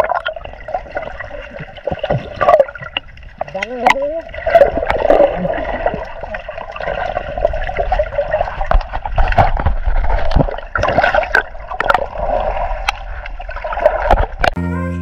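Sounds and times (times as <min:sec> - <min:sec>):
muffled underwater water rushing: 0:00.0 - 0:14.6.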